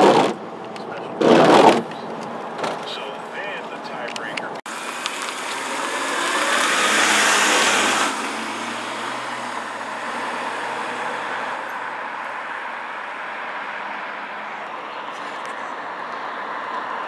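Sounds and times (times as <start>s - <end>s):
car driving past: 5.4s - 14.3s.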